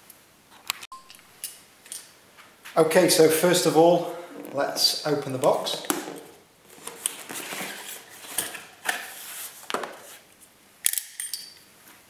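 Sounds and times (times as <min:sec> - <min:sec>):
cardboard rustling and scraping: 0:04.3 - 0:10.3.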